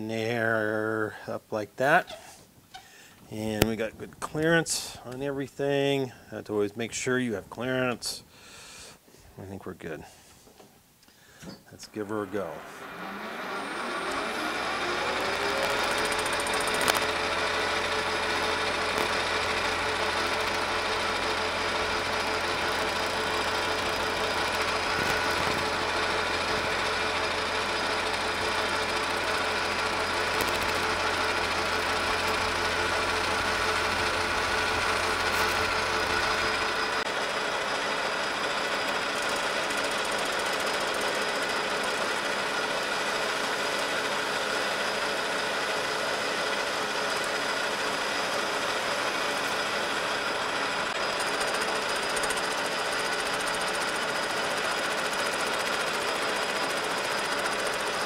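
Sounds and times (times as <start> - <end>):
metal lathe whining: 12.0 - 58.0
low hum: 12.5 - 37.1
sharp click: 15.6 - 17.2, 30.4 - 30.8.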